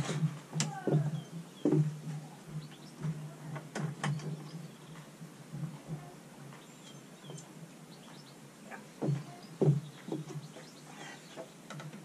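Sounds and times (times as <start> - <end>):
small birds chirping faintly: 0.0 - 12.0
knocks and clicks of bike handling: 11.3 - 12.0.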